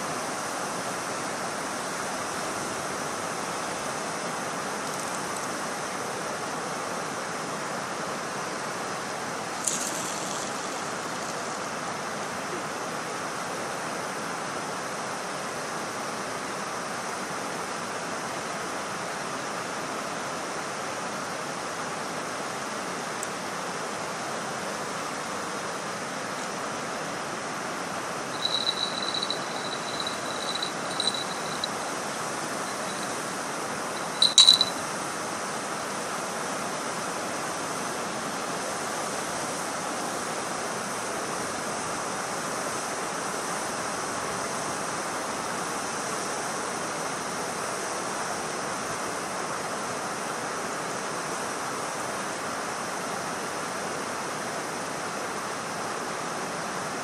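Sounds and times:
high-pitched chirps: 28.4 - 31.9, 32.6 - 33.2, 34.0 - 34.8.

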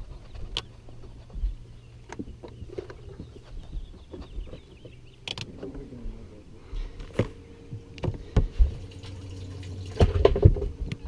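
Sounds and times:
knocks and clicks of handling gear: 0.2 - 5.9, 7.0 - 8.8.

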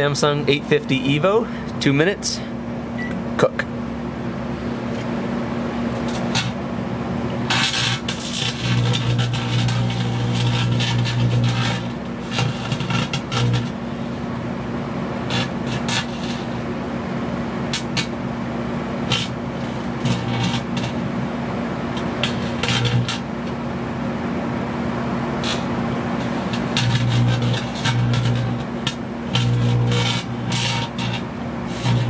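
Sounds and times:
microwave oven hum: 0.0 - 32.0
electrical arcing snaps and crackles: 5.9 - 6.6, 7.4 - 13.8, 15.2 - 16.7, 17.7 - 18.3, 19.0 - 23.6, 25.4 - 32.0.

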